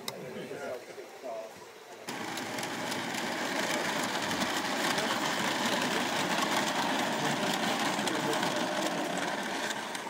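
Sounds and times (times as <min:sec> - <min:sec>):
model train rattling on track: 0:02.1 - 0:10.0.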